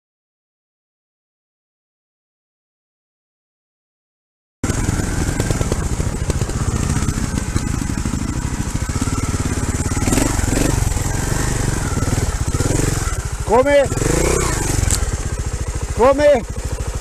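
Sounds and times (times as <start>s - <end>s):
motorcycle engine running at low revs: 4.6s - 17.0s.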